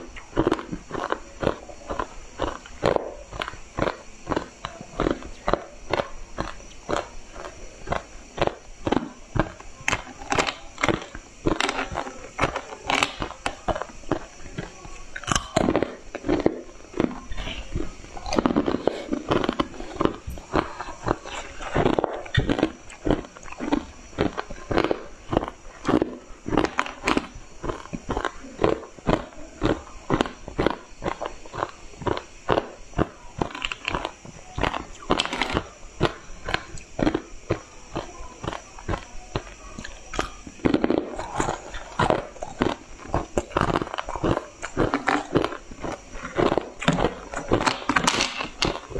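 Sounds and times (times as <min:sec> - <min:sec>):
crunching and chewing ice: 0:00.0 - 0:48.9.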